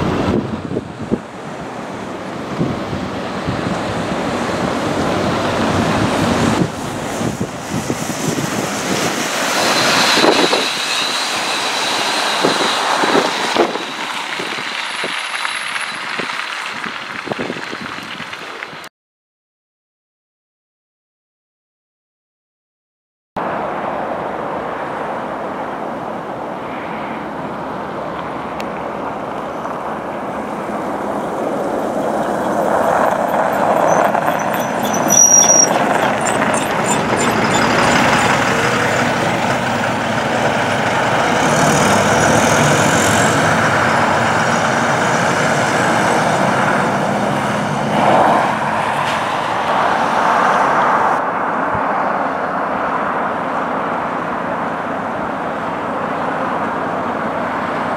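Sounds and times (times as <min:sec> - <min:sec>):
diesel coach driving past: 0:00.0 - 0:18.9, 0:27.2 - 0:51.2
tyre noise on snowy road: 0:00.0 - 0:18.9, 0:23.4 - 0:57.9
short high squeal: 0:09.3 - 0:16.3, 0:32.2 - 0:39.2.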